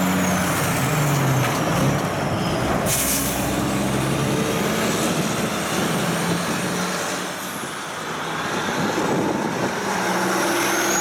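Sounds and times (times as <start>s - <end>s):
truck engine driving off: 0.0s - 7.3s
vehicle approaching: 0.0s - 11.0s.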